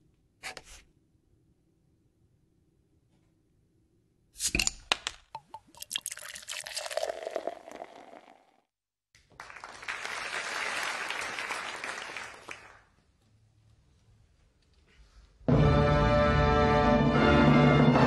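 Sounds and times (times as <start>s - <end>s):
audience applause: 9.3s - 12.9s.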